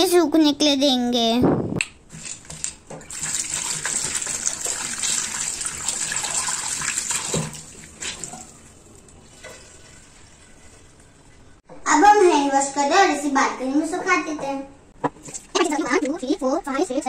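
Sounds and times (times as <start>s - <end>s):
tap running into washbasin: 2.1s - 10.8s.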